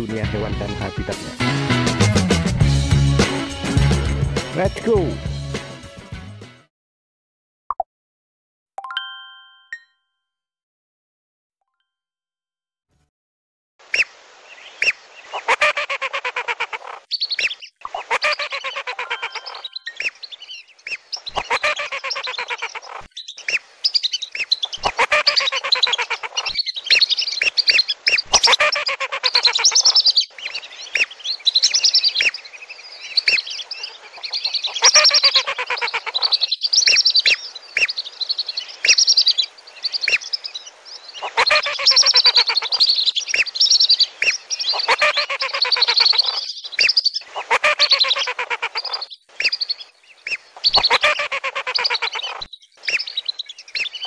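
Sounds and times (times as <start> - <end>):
ducks whistling: 14.8 - 40.5, 41.2 - 54.0
ducks chattering buzzily: 15.3 - 20.2, 20.9 - 23.8, 24.6 - 31.6, 33.2 - 38.0, 40.0 - 43.5, 44.2 - 53.9.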